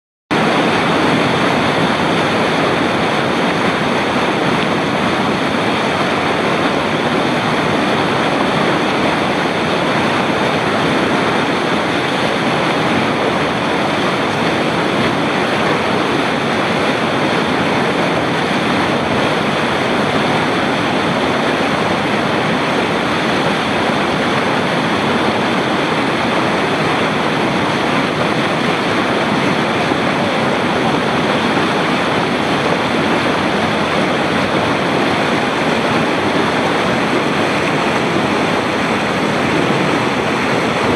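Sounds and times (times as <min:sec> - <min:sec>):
whitewater rushing over boulders: 0:00.3 - 0:40.9.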